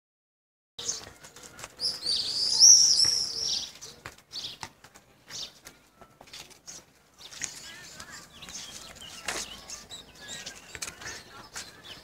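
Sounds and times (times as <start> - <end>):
songbirds chirping: 0.8 - 12.0
bird warbling song: 1.8 - 4.6.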